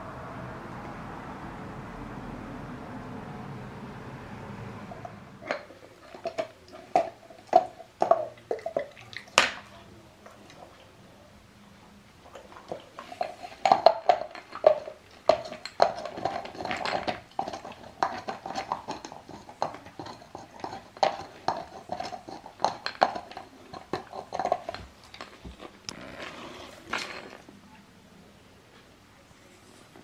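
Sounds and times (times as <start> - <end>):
dog teeth scraping bone: 15.3 - 26.9.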